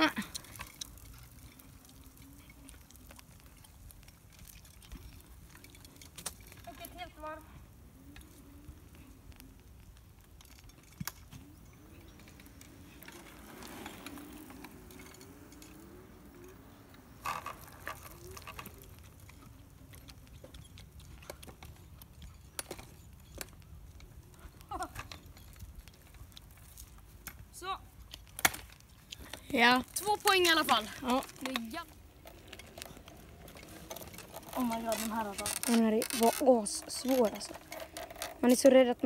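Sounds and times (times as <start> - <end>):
wheel and frame clicks and knocks: 0.0 - 39.0.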